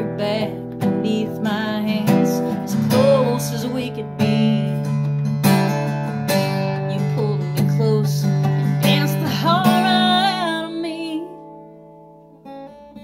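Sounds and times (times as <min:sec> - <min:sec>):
person singing with vibrato: 0:00.0 - 0:04.9, 0:06.7 - 0:11.4
acoustic guitar strumming: 0:00.0 - 0:13.0.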